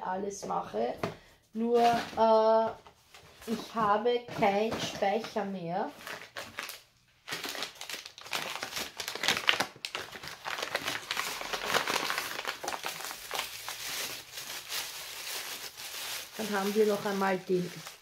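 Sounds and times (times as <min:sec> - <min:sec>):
packing wrap crinkling: 0:06.0 - 0:18.0.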